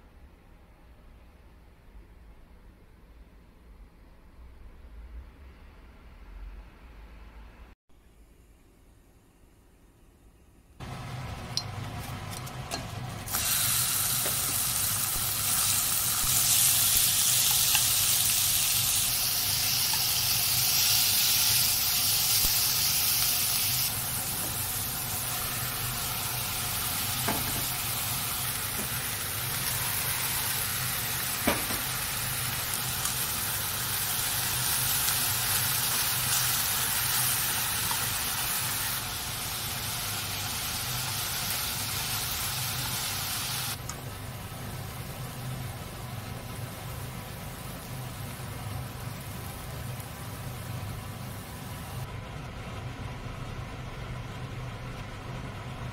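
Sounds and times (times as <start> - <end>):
food sizzling in hot oil: 12.0 - 52.1.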